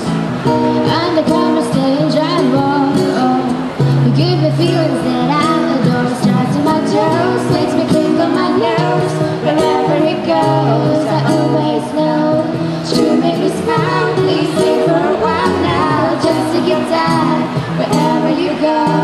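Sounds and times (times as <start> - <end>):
acoustic guitar: 0.0 - 19.0
woman singing: 0.7 - 19.0
cajon beat: 5.4 - 19.0.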